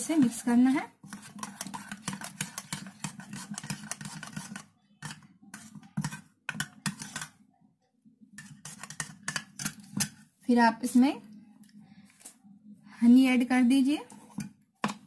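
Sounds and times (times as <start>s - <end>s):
spoon scraping ceramic bowl: 0.0s - 7.4s, 8.4s - 10.2s.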